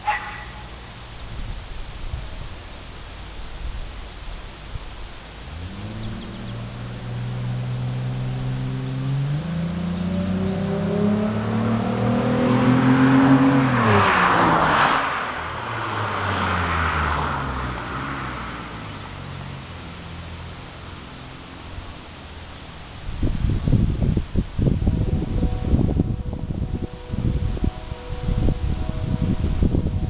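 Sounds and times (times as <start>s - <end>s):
car engine accelerating past: 5.4s - 23.8s.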